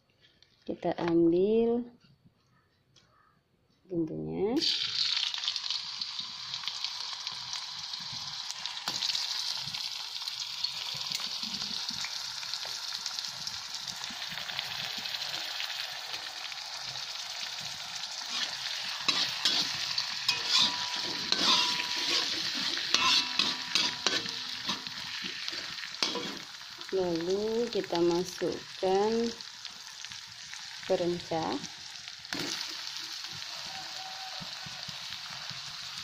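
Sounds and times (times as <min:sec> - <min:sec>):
food sizzling in hot oil: 0:04.5 - 0:36.0
metal spatula scraping a wok: 0:18.2 - 0:26.7.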